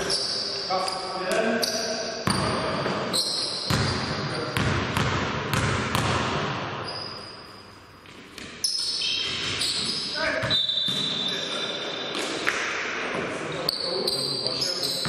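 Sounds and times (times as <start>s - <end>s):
sneakers squeaking on floor: 0.0s - 12.5s, 13.6s - 15.0s
basketball bouncing on court: 3.6s - 6.9s, 8.0s - 11.2s.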